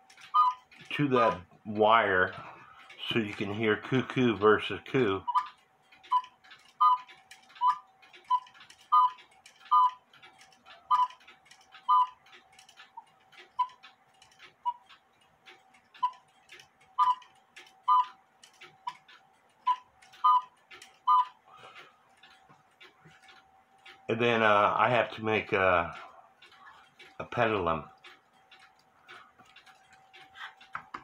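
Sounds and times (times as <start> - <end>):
clock ticking clicks: 0.0 - 31.0.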